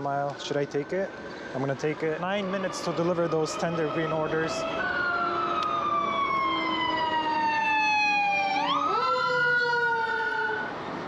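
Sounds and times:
siren wailing: 0.5s - 11.0s.

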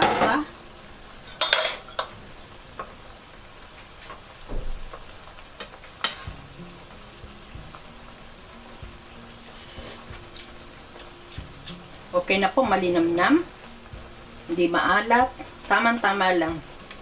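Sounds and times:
sauce sizzling in a frying pan: 0.0s - 17.0s
metal spoon clinking: 1.4s - 2.2s.

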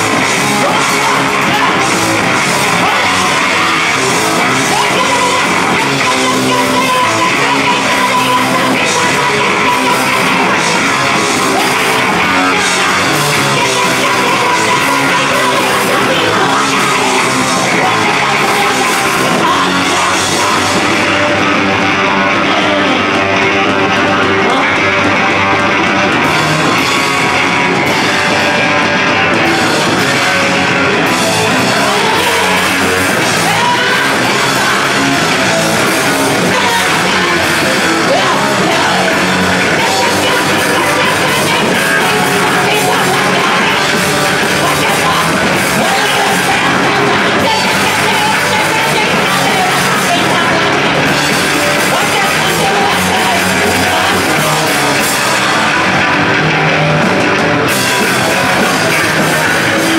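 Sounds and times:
rock band playing: 0.0s - 59.9s
woman yelling vocals: 2.8s - 20.7s, 31.7s - 35.0s, 36.2s - 51.0s.

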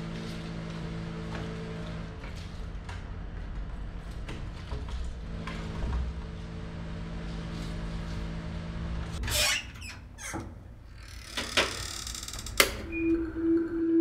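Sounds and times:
steady low hum: 0.0s - 9.2s
door scraping squeak: 9.2s - 13.4s.

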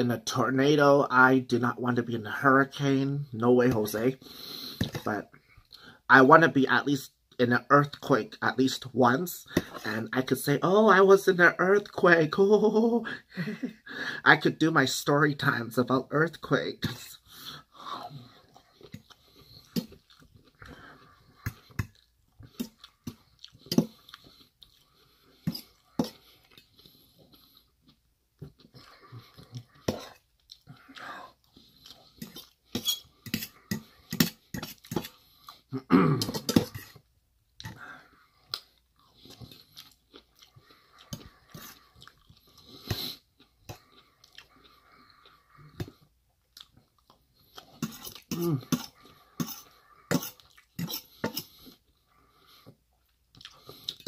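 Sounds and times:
wet chewing mouth sounds: 18.0s - 35.8s, 38.4s - 54.0s.

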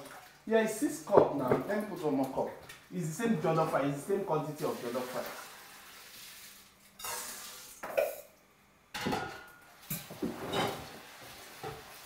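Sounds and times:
dishes and utensils clattering: 7.0s - 8.3s, 9.0s - 12.0s.

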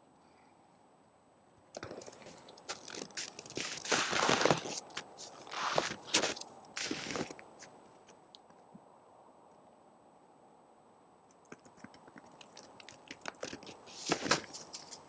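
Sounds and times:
moose crunching: 1.8s - 8.2s, 11.5s - 15.0s.

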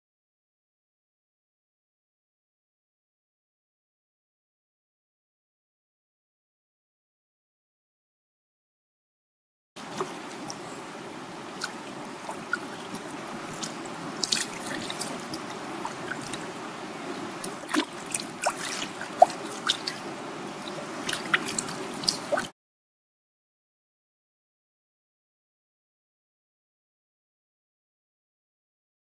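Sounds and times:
floodwater rushing: 9.8s - 22.5s
water drips and splashes: 9.8s - 22.5s.

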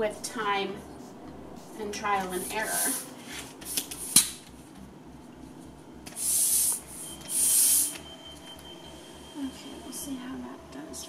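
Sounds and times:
air hissing from valve: 2.6s - 3.1s, 6.1s - 8.0s.

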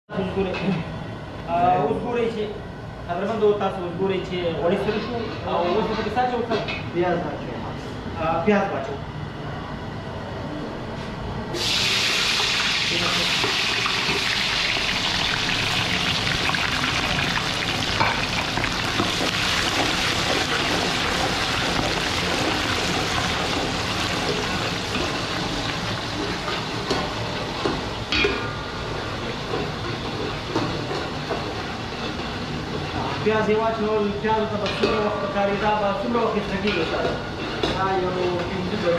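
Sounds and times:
onions sizzling in hot oil: 11.6s - 28.2s.

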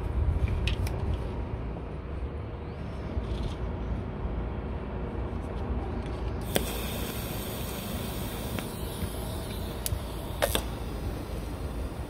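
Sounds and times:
sharp clicks and crackles: 6.4s - 11.5s
welding arc hissing: 6.4s - 12.0s.

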